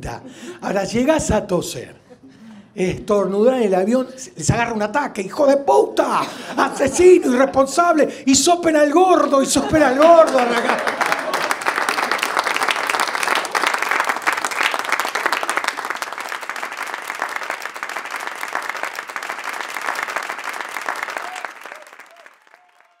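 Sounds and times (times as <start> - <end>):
audience applauding: 8.9 - 23.0.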